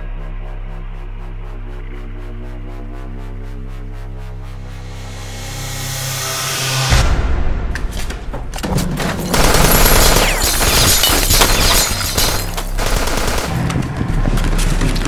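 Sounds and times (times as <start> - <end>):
steady low drone: 0.0 - 15.0
rapid gunfire: 9.2 - 14.6.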